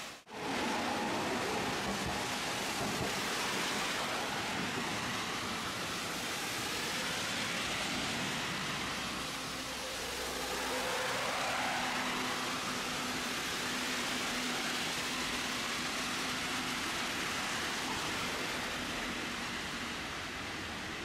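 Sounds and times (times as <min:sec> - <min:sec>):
heavy rain hiss: 0:00.0 - 0:21.0
streetcar running noise: 0:00.0 - 0:21.0.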